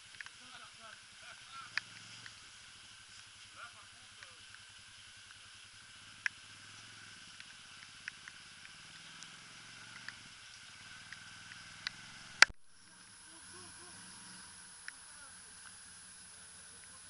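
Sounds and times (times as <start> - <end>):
sharp clicks: 0.0 - 0.4, 1.7 - 2.6, 4.1 - 5.4, 6.1 - 12.6
quad bike engine idling: 0.0 - 17.0.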